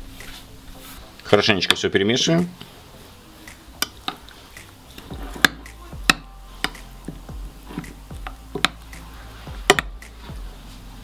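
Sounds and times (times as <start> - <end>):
spoon stirring thick mixture: 3.7 - 10.3.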